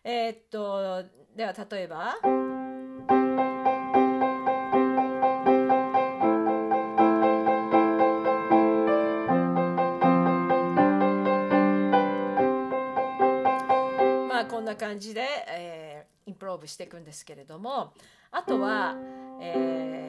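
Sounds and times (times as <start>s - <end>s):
piano playing: 2.2s - 14.8s, 18.5s - 20.0s.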